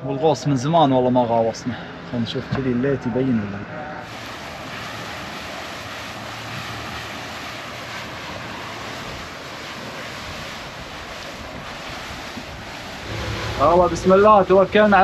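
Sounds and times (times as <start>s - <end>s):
water rushing around boat: 0.0s - 15.0s
wind: 0.0s - 15.0s.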